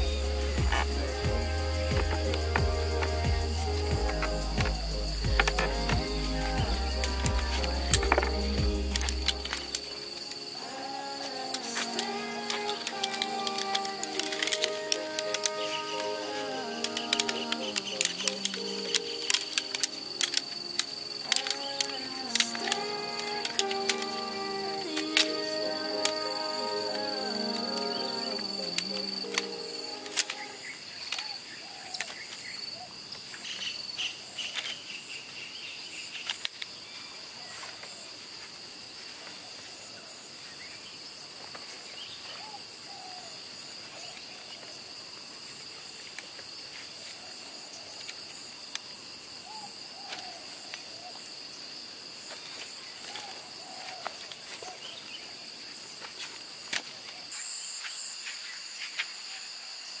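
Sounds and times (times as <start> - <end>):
high-pitched insect chorus: 0.0 - 60.0
folding camp chair clicking: 11.6 - 16.1, 16.7 - 26.3.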